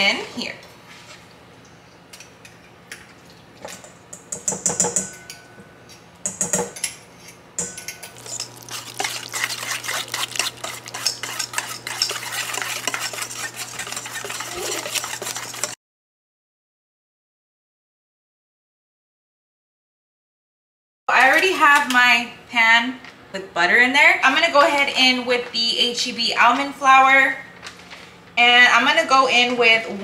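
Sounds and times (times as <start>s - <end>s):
whisk clinking in metal bowl: 7.6s - 15.8s.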